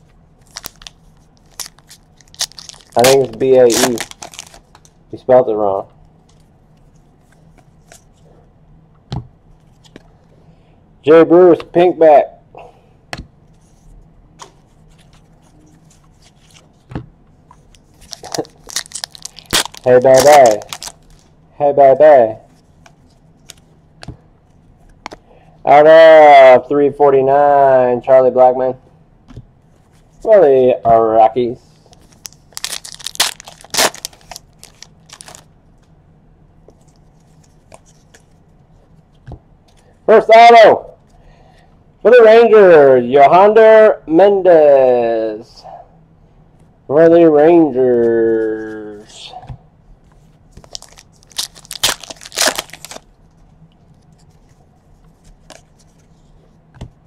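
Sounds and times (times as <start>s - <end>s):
foil pack crackling: 0.4s - 4.8s, 18.0s - 21.3s, 32.1s - 35.5s, 50.7s - 53.1s
wrapper crinkling and tearing: 0.4s - 4.9s, 18.0s - 21.3s, 32.0s - 35.5s, 50.6s - 53.1s.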